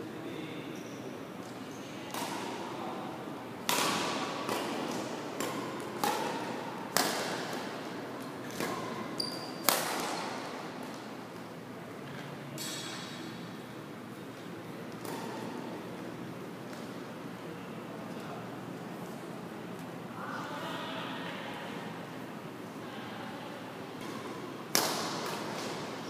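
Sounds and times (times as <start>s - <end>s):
shoes squeaking on court floor: 8.5s - 10.4s.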